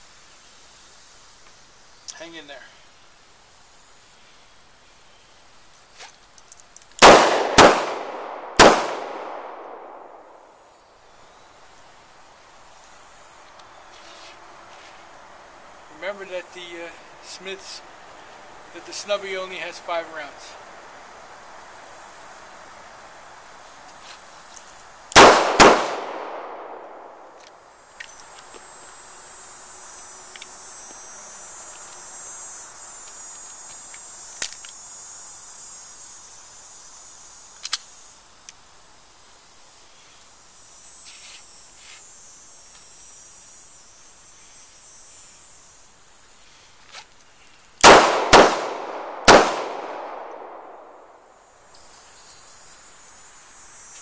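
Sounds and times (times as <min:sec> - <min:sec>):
revolver gunshots: 0:07.0 - 0:10.4, 0:25.2 - 0:27.3, 0:47.8 - 0:50.9.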